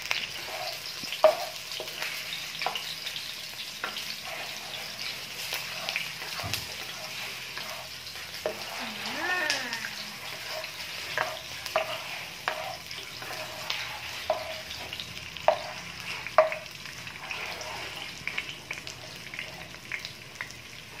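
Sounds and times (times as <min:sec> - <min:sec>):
onions sizzling in oil: 0:00.0 - 0:21.0
spatula knocking against pan: 0:01.2 - 0:01.9, 0:10.6 - 0:12.7, 0:15.4 - 0:15.8, 0:16.4 - 0:16.7.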